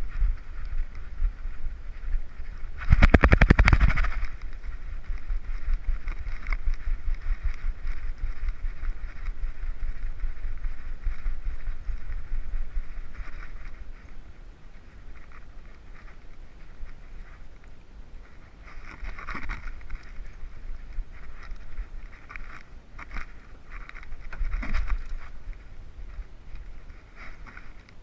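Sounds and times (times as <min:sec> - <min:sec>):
steady rustle: 0:00.0 - 0:28.0
loud rapid rattle: 0:02.8 - 0:04.3.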